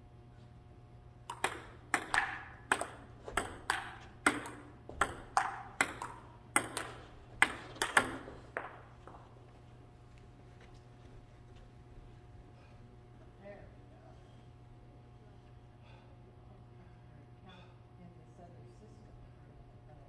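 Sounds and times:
table tennis ball clicking: 1.3s - 8.8s.

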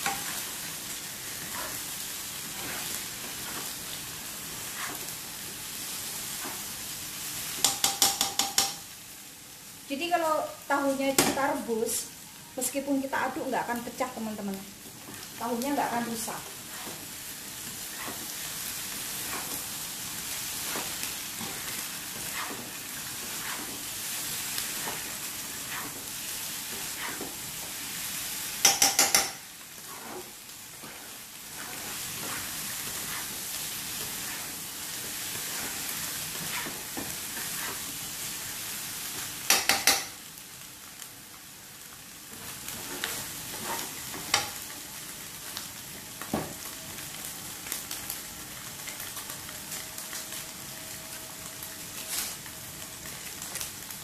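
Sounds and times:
spatula scraping wok: 0.0s - 8.4s, 15.9s - 40.0s, 42.5s - 44.6s
food sizzling in a wok: 0.0s - 54.0s.

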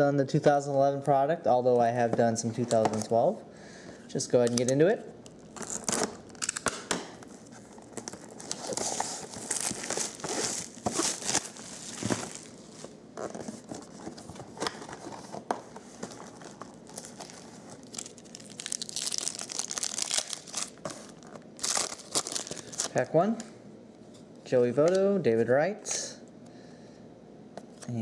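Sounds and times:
plastic wrap crinkling and tearing: 5.4s - 14.0s, 16.1s - 23.1s
foil pack rustling: 7.3s - 15.2s, 16.0s - 23.0s.

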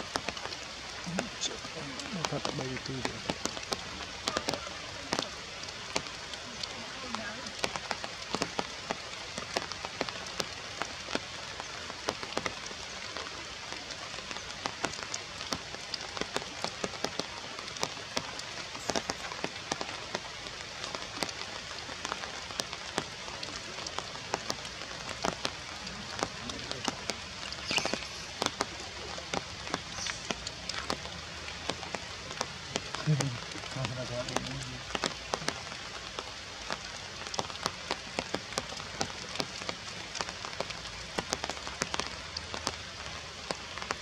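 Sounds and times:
rain falling through trees: 0.0s - 44.0s.

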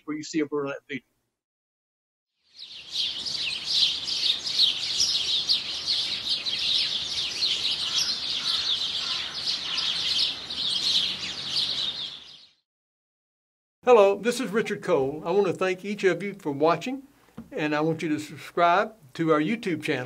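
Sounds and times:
small birds chirping and singing: 2.4s - 12.6s.

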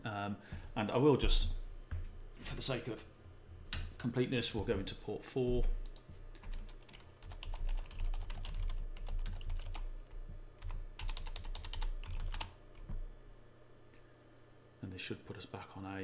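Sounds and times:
steady low hum: 0.0s - 16.0s
computer keyboard typing: 5.8s - 13.0s.

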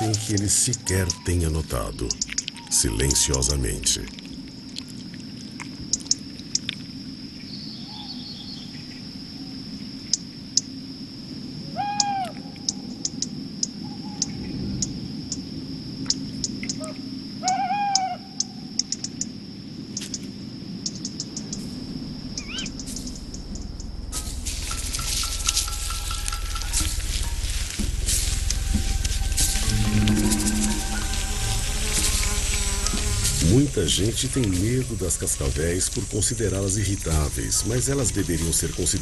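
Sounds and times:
owl calling: 0.0s - 3.4s, 11.7s - 13.0s, 16.7s - 18.7s, 22.4s - 23.7s, 24.6s - 33.4s
small ticks: 2.1s - 7.0s, 16.0s - 19.3s, 19.9s - 21.7s, 22.4s - 33.4s
low hum: 20.8s - 39.0s
steady high tone: 22.0s - 34.5s.

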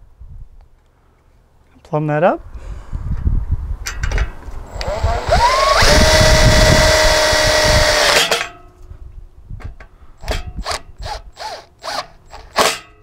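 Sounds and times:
impact driver whining: 4.7s - 8.4s.

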